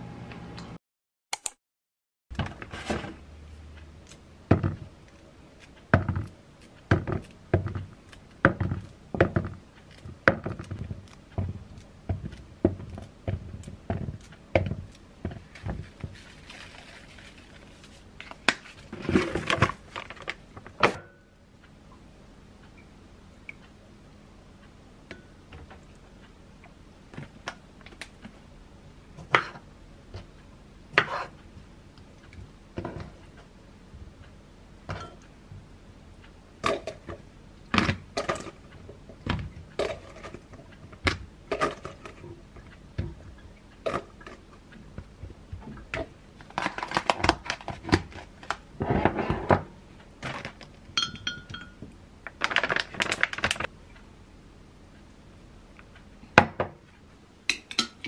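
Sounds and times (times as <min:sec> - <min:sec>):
rustling: 0:12.3 - 0:20.4
kitchenware knocks and clinks: 0:51.0 - 0:51.8.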